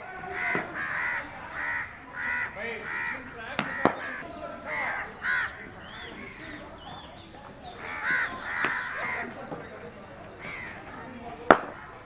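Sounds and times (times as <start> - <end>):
crows cawing: 0.2 - 6.6, 7.7 - 9.5, 10.4 - 11.0.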